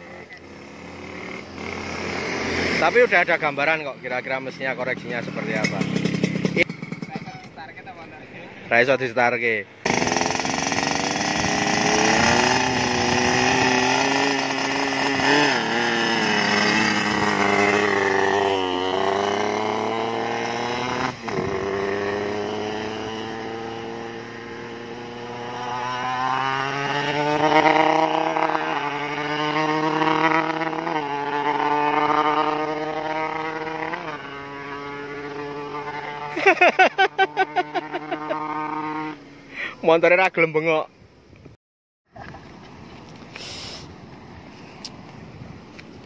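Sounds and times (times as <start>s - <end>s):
motorcycle accelerating through gears: 0.1s - 3.3s, 4.8s - 7.2s, 9.8s - 39.5s.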